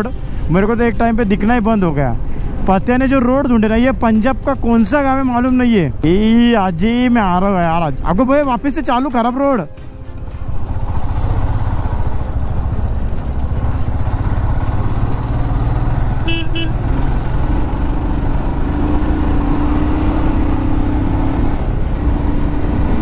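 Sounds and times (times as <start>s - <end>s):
motorcycle engine running: 9.8s - 23.0s
horn toots: 16.2s - 16.9s.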